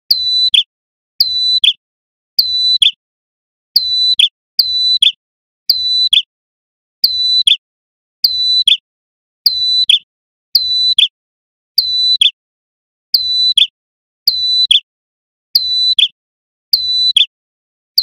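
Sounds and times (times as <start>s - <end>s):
bird singing high whistle call: 0.1s - 1.8s, 2.4s - 3.0s, 3.8s - 6.3s, 7.0s - 7.6s, 8.2s - 8.8s, 9.4s - 11.2s, 11.8s - 12.4s, 13.1s - 14.9s, 15.6s - 17.4s.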